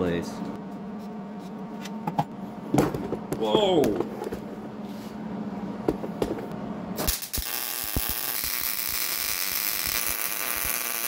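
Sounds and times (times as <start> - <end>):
faint hum: 0.0 - 11.0
welder arc crackling sizzle: 7.0 - 11.0.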